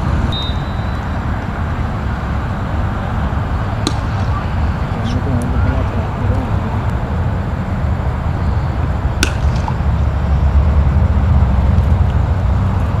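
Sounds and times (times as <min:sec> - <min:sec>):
cricket ball cracking: 0:03.8 - 0:04.6, 0:09.2 - 0:09.9.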